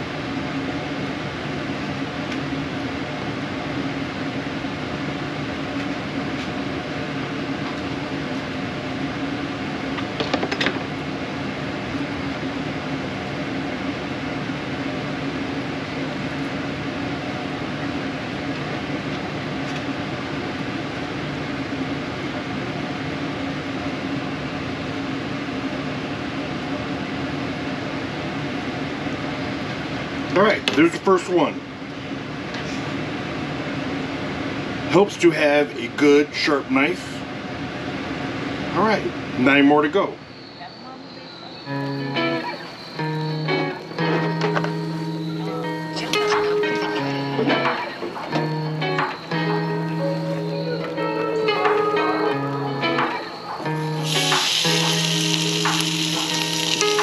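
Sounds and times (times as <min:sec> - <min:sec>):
fan humming: 0:52.8 - 0:57.0.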